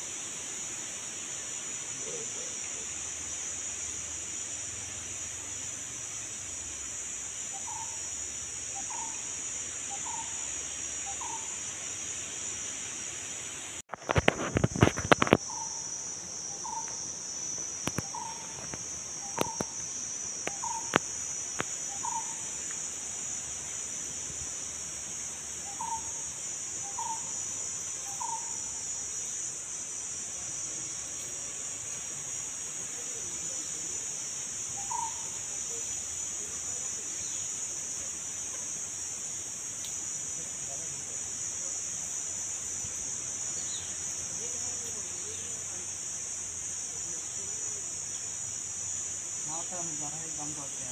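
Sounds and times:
insects droning: 0:00.0 - 0:50.9
bird calling: 0:17.9 - 0:19.8, 0:20.5 - 0:21.0, 0:21.9 - 0:22.6, 0:34.8 - 0:35.4.

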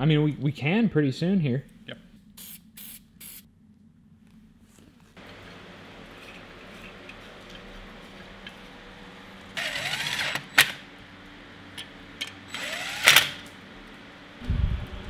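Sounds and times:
cordless driver whirring: 0:09.6 - 0:10.8, 0:12.2 - 0:13.5.

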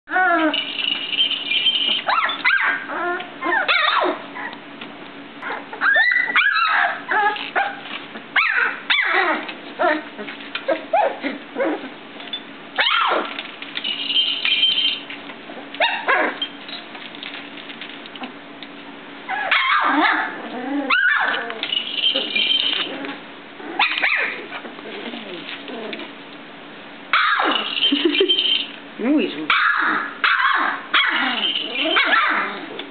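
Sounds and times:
puppies yipping and whimpering: 0:00.1 - 0:04.6, 0:05.4 - 0:12.0, 0:12.8 - 0:13.4, 0:15.6 - 0:16.6, 0:19.3 - 0:26.1, 0:27.2 - 0:28.7, 0:29.6 - 0:32.8.

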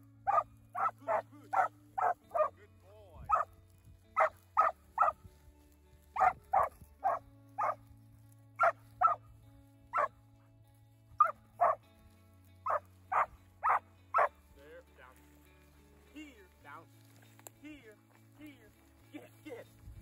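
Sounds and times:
puppy barking: 0:00.2 - 0:02.6, 0:03.3 - 0:03.5, 0:04.2 - 0:05.2, 0:06.2 - 0:07.8, 0:08.6 - 0:09.2, 0:09.9 - 0:10.1, 0:11.2 - 0:11.8, 0:12.6 - 0:14.3.

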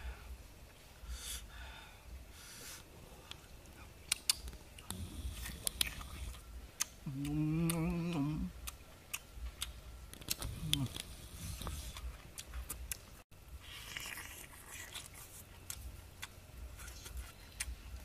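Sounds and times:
person chewing crunchy food: 0:04.1 - 0:18.0
person humming mmm: 0:04.9 - 0:08.8, 0:10.4 - 0:12.0.

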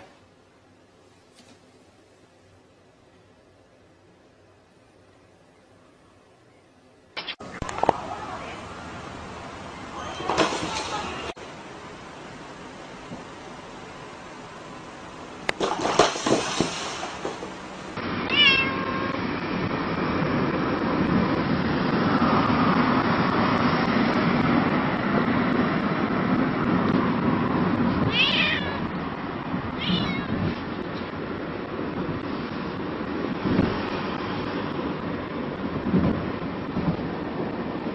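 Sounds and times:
steady road noise: 0:00.0 - 0:37.9
cat meowing: 0:18.3 - 0:19.0, 0:28.0 - 0:28.9, 0:29.8 - 0:30.4.

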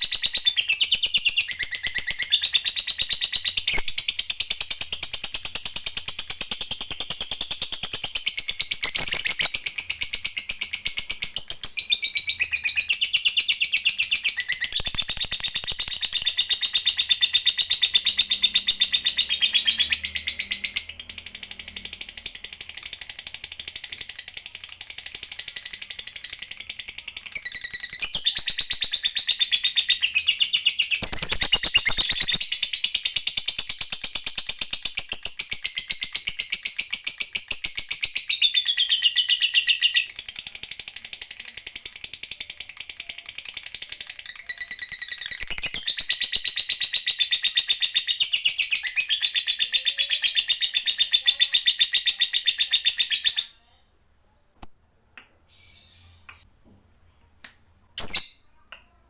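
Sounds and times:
bird chattering trill: 0:06.3 - 0:12.8, 0:13.9 - 0:32.6.

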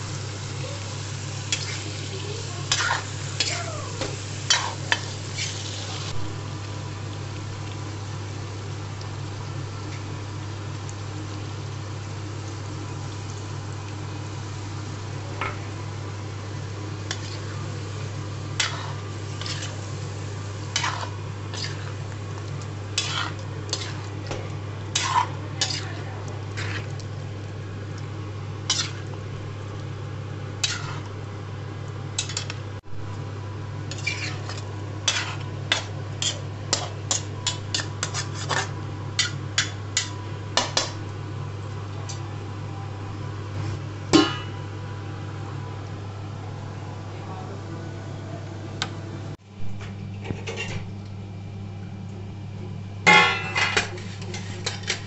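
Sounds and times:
steady low hum: 0:00.0 - 0:55.0
spatula scraping a metal pan: 0:18.6 - 0:19.8, 0:20.7 - 0:22.0, 0:23.0 - 0:24.1, 0:28.7 - 0:29.1, 0:30.6 - 0:31.0, 0:33.9 - 0:39.4, 0:53.9 - 0:55.0.

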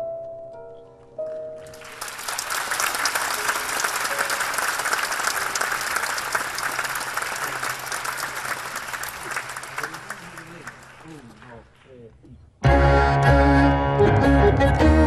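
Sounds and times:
audience applause: 0:01.6 - 0:11.8
tango music: 0:12.6 - 0:15.0.

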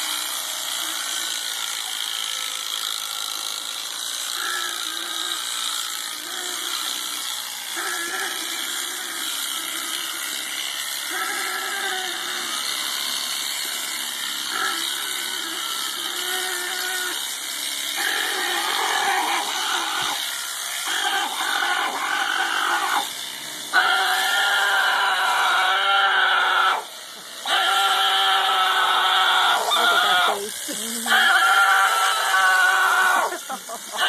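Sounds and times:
electric shears running: 0:00.0 - 0:34.0
alpaca crying in distress: 0:07.8 - 0:10.2, 0:11.0 - 0:12.7, 0:14.5 - 0:17.3, 0:18.0 - 0:20.2, 0:20.8 - 0:23.1, 0:23.7 - 0:34.0.

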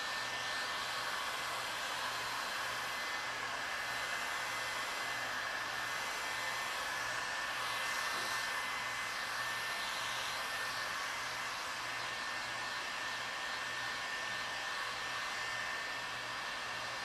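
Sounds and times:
heat gun blowing air: 0:00.0 - 0:17.0.

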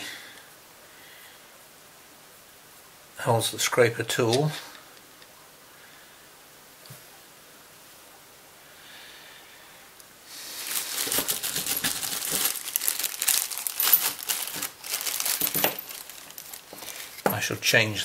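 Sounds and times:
plastic bag crinkling: 0:10.3 - 0:17.5.

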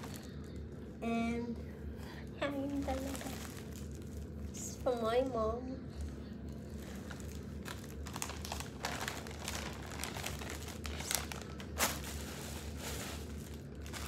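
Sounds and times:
packaging crinkling and rustling: 0:00.0 - 0:00.6, 0:02.5 - 0:05.4, 0:06.5 - 0:14.0.

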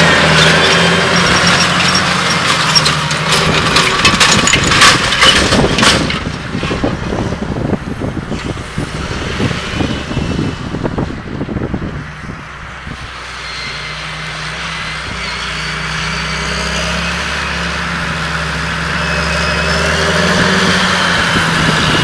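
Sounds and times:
tractor diesel engine under load: 0:00.0 - 0:22.0
cultivator rattling in soil: 0:00.2 - 0:07.2.

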